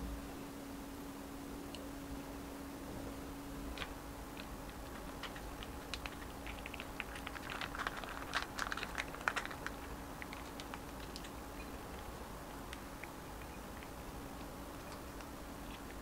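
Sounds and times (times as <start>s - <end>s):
rice paper clicking and crinkling: 3.7s - 16.0s.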